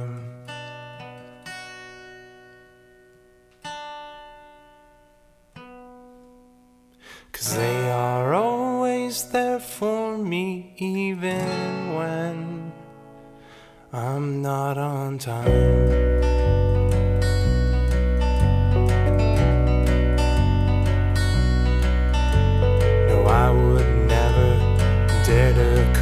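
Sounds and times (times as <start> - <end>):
person singing: 0.0 - 0.5, 7.2 - 13.0, 13.9 - 16.2, 22.8 - 26.0
acoustic guitar chords: 0.0 - 26.0.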